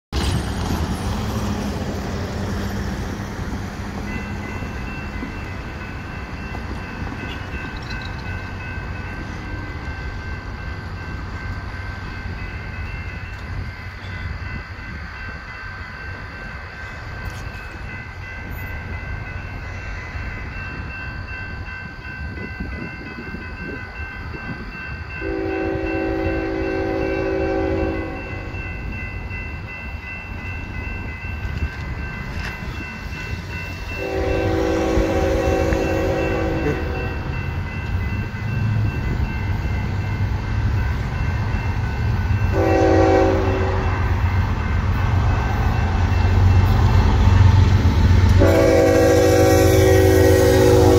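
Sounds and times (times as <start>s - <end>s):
crossing warning bell ringing: 0.2s - 50.9s
locomotive horn: 25.2s - 28.5s, 34.0s - 37.2s, 42.5s - 44.0s, 48.4s - 50.9s.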